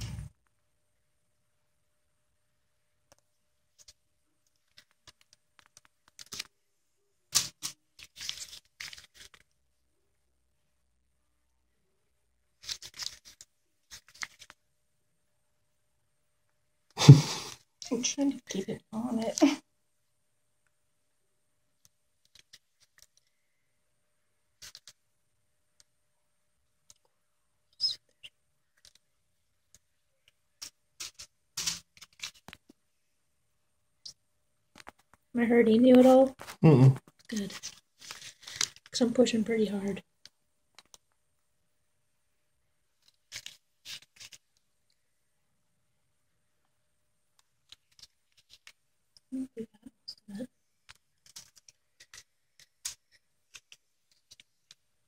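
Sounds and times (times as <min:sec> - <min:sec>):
crinkling rustles: 0:03.7 - 0:06.6, 0:07.3 - 0:09.6, 0:12.6 - 0:14.6, 0:29.7 - 0:32.8, 0:35.9 - 0:39.0, 0:42.9 - 0:45.0, 0:47.4 - 0:48.8, 0:50.7 - 0:54.9.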